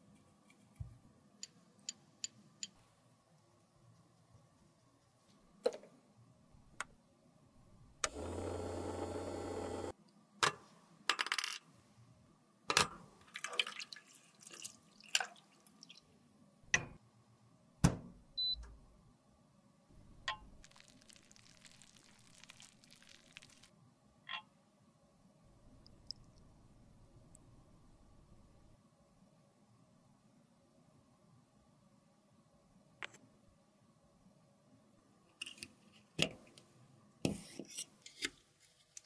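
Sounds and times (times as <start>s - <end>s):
machine buzz with low hum: 8.0s - 9.9s
water splashing: 20.6s - 23.7s.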